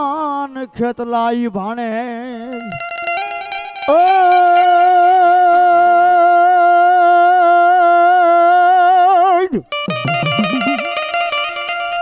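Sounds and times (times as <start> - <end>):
person singing long note: 3.4 - 8.2.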